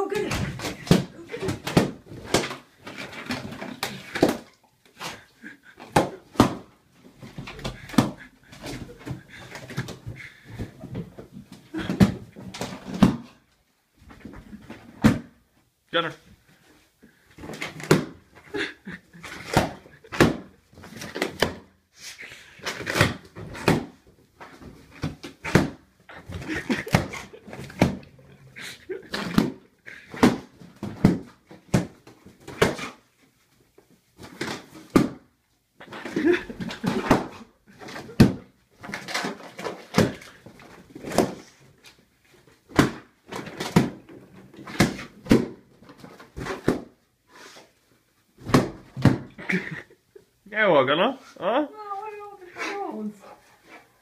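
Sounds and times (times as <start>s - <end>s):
balloons popping: 0.2s - 6.7s.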